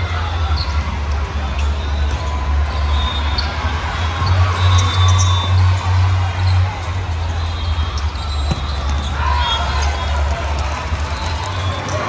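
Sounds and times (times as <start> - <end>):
volleyballs struck and bouncing: 8.0 - 9.9.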